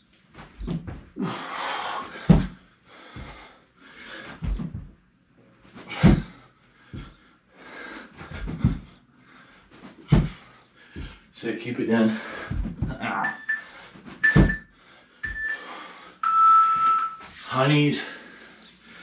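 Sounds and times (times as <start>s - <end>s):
thuds of body landing on floor: 0.4s - 1.1s, 2.1s - 3.4s, 4.3s - 5.0s, 5.8s - 6.4s, 8.2s - 8.9s, 9.8s - 11.2s, 12.4s - 13.0s, 14.1s - 14.6s
man breathing hard: 1.1s - 4.9s, 5.8s - 11.4s, 12.0s - 13.0s, 13.6s - 16.2s, 18.0s - 19.0s.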